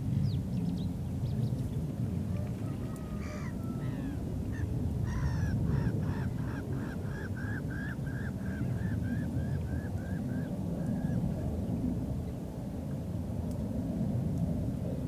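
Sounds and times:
gulls calling: 0:02.5 - 0:11.3.

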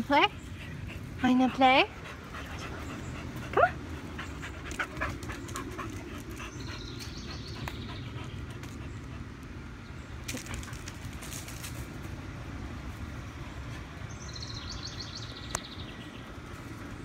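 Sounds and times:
dog panting: 0:00.3 - 0:09.4.

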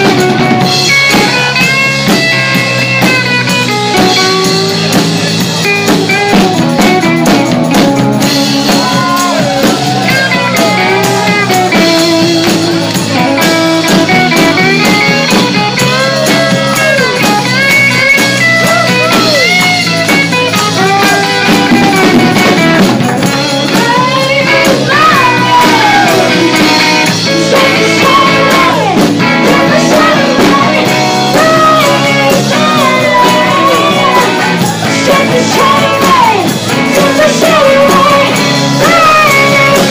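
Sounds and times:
bass guitar: 0:00.0 - 0:39.9
electric guitar: 0:00.0 - 0:39.9
woman singing into microphone: 0:23.6 - 0:39.9.

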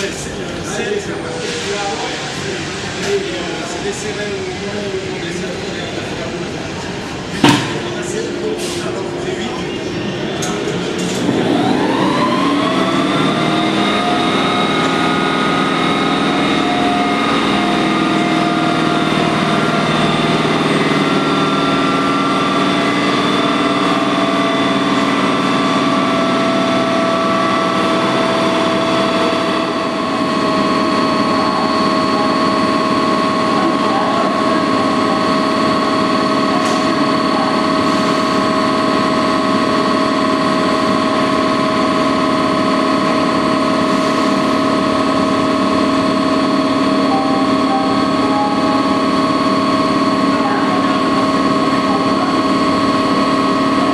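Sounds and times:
locomotive blowers whining: 0:00.0 - 0:53.9
higher tone: 0:44.4 - 0:53.9.

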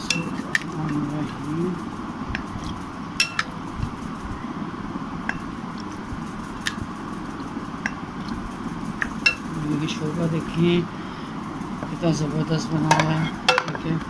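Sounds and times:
spoon clinking against bowl: 0:09.2 - 0:09.5.

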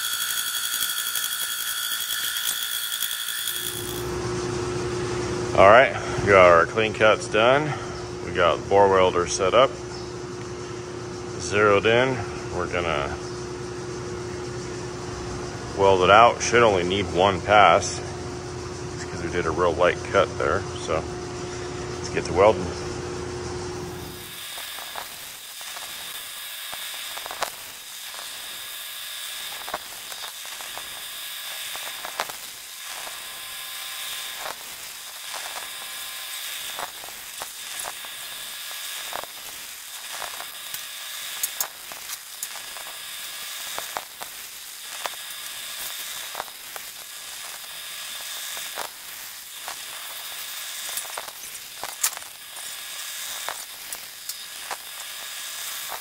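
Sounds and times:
welding arc crackling: 0:00.0 - 0:04.9, 0:23.8 - 0:56.0
spatter popping: 0:29.4 - 0:56.0.

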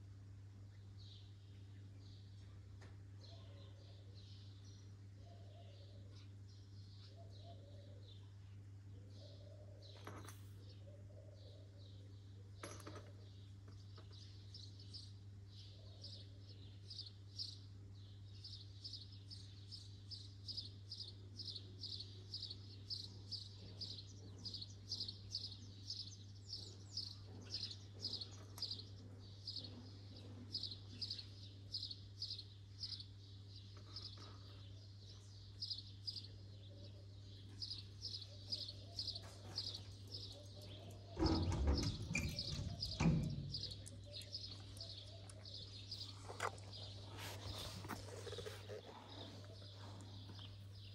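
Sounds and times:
small bird chirping: 0:18.4 - 0:50.9.

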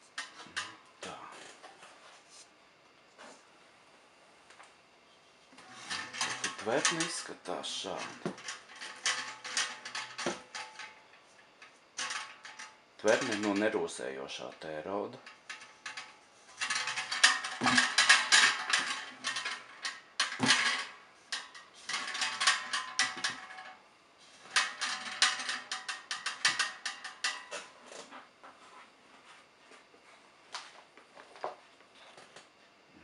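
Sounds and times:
metal tank clattering and scraping: 0:05.6 - 0:28.1.

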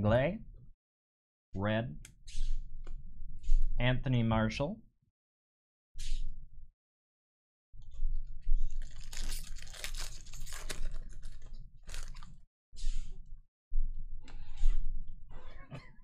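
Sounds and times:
foil wrapper tearing and crinkling: 0:08.7 - 0:12.4.

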